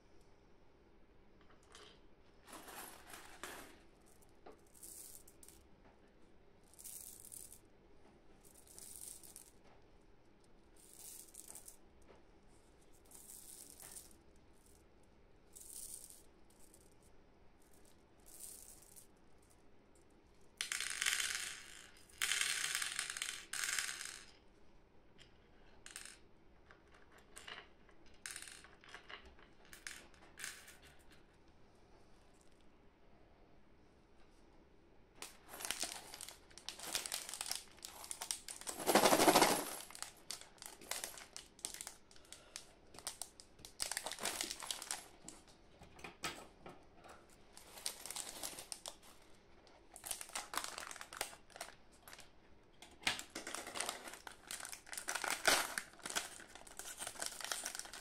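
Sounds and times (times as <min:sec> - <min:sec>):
candy balls clicking and rattling: 0:04.1 - 0:05.7, 0:06.7 - 0:07.6, 0:08.5 - 0:09.6, 0:10.8 - 0:11.8, 0:13.0 - 0:14.7, 0:15.5 - 0:17.0, 0:17.8 - 0:19.1, 0:20.6 - 0:24.4, 0:35.2 - 0:45.4, 0:47.6 - 0:49.2, 0:49.9 - 0:52.3, 0:53.2 - 0:58.0
gloves rustling: 0:35.4 - 0:41.9.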